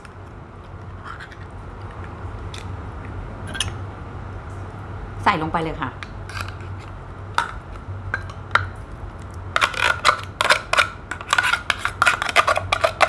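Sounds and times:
utensil scraping inside tin can: 9.6 - 13.0.

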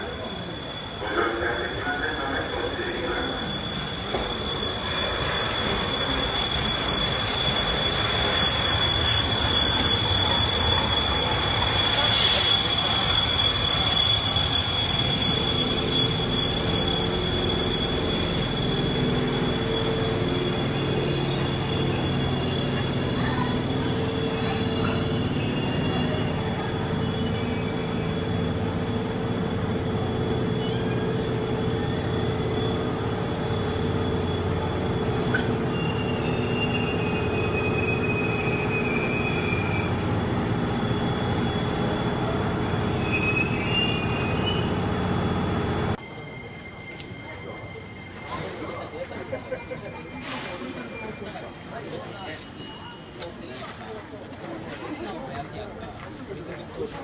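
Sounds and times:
rumble of coaches rolling: 0.0 - 12.0
train brake squeal: 0.0 - 45.0, 46.0 - 53.8
steam hiss: 9.4 - 19.0.

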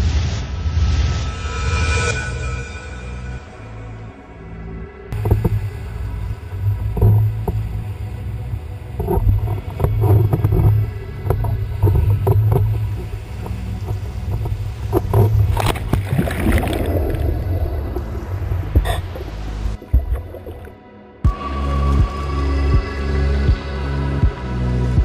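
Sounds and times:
water rushing: 5.2 - 22.7
board slapping on water: 9.0 - 20.8.

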